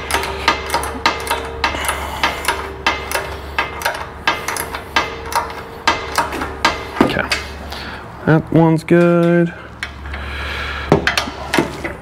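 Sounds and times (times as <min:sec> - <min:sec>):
socket ratchet clicking: 0:00.0 - 0:06.8
steady low hum: 0:00.0 - 0:12.0.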